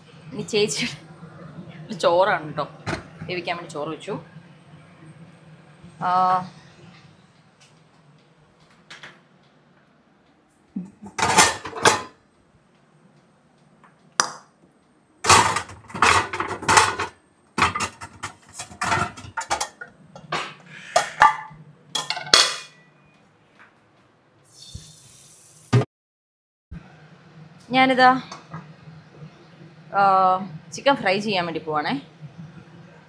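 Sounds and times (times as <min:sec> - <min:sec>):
metal pots and pans clanking: 0:11.1 - 0:12.1, 0:15.3 - 0:22.8.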